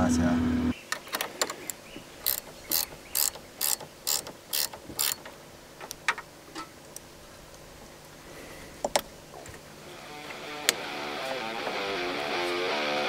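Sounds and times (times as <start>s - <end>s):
sharp metal clicks: 0.9s - 7.0s
ratchet spanner clicking: 2.2s - 5.2s.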